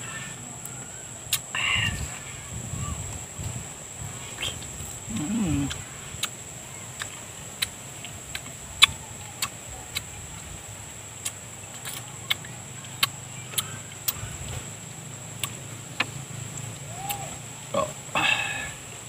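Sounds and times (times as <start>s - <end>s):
person eating with lip smacks: 4.4s - 6.4s.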